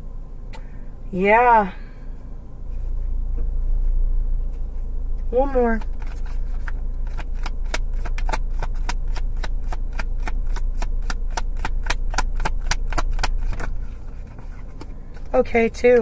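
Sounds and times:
steady low hum: 0:00.0 - 0:16.0
cards being shuffled: 0:05.8 - 0:15.4.

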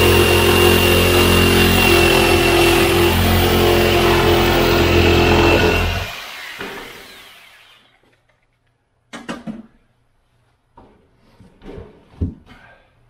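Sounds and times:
power tool cutting and winding down: 0:00.0 - 0:08.0
tool set down on table: 0:09.2 - 0:09.8.

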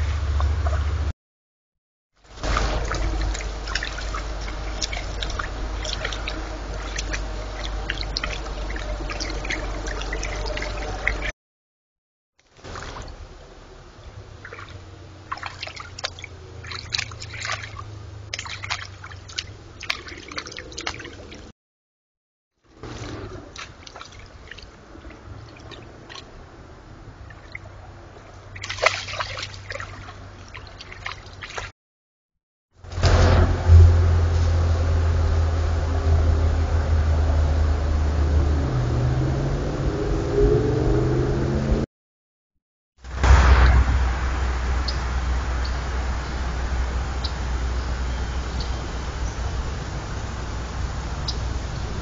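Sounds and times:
water trickling and dripping: 0:02.2 - 0:11.3, 0:12.4 - 0:21.5, 0:22.7 - 0:31.7
deer stepping in wet brush: 0:02.3 - 0:11.3
steady low hum: 0:02.3 - 0:11.3, 0:32.9 - 0:40.3.

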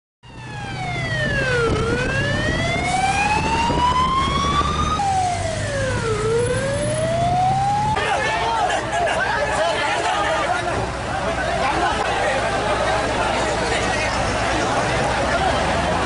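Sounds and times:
siren wailing: 0:00.2 - 0:08.5.

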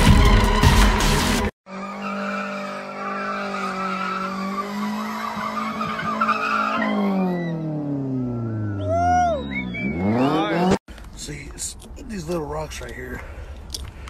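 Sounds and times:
tires squealing: 0:00.0 - 0:10.8
car engine revving high: 0:01.7 - 0:10.8.

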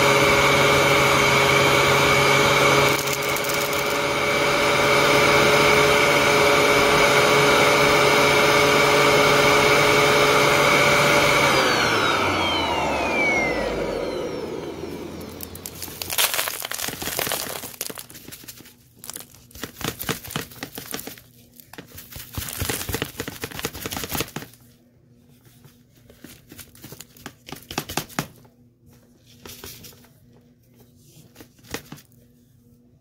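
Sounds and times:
dirt rustling and crackling: 0:15.5 - 0:19.3.

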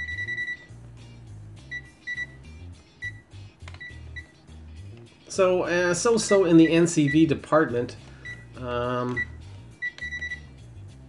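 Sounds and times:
high-pitched meter beeps: 0:00.0 - 0:00.7, 0:01.7 - 0:02.4, 0:09.1 - 0:10.5
background music with bass line: 0:00.0 - 0:11.0.

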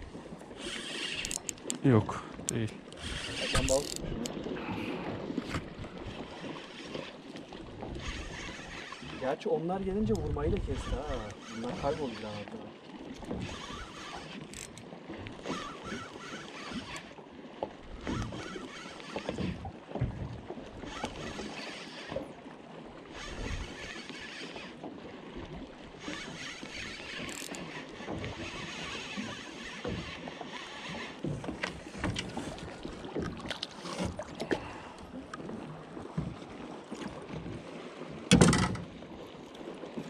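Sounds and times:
water sloshing against hull: 0:00.0 - 0:40.0
wind on microphone: 0:10.0 - 0:11.9, 0:23.1 - 0:24.0.

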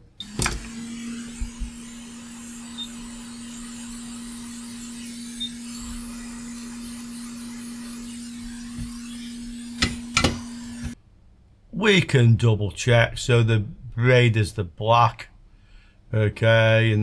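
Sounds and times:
blown air hissing: 0:00.2 - 0:11.0
heat gun motor humming: 0:00.2 - 0:11.0.

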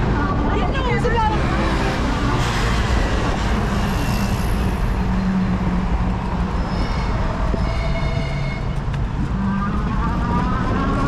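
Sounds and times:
city traffic rumble: 0:00.0 - 0:11.0.

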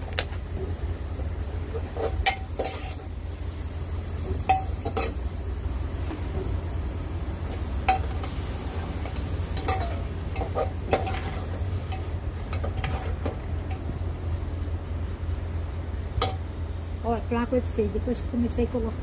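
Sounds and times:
steady low hum: 0:00.0 - 0:19.0
food sizzling in a pan: 0:00.8 - 0:17.1.

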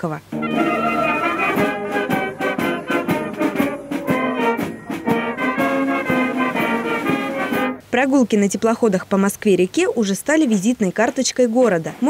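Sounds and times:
wind band playing: 0:00.3 - 0:07.8.

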